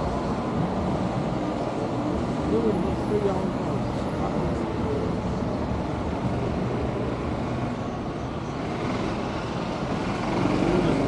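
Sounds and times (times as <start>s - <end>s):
cars passing: 0.0s - 11.0s
low rumble of engines and tyres: 0.0s - 11.0s.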